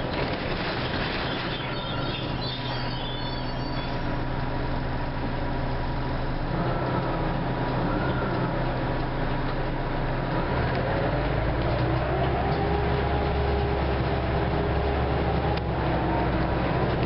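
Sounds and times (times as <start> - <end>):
bus engine droning: 0.0 - 17.0
rising drivetrain whine: 0.0 - 17.0.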